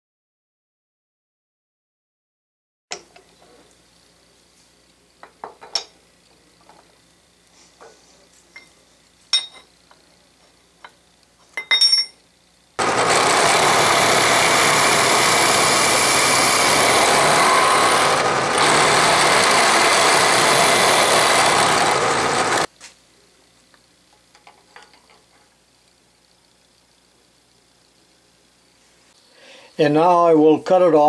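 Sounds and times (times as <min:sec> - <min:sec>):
milling machine cutting steel: 0:12.8 - 0:22.7.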